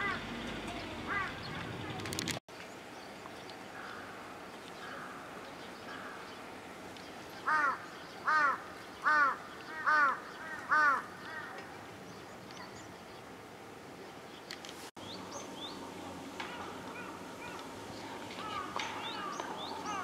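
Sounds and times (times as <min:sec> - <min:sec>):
crow cawing: 0:00.0 - 0:00.3, 0:01.1 - 0:01.4, 0:07.4 - 0:11.6, 0:18.4 - 0:20.0.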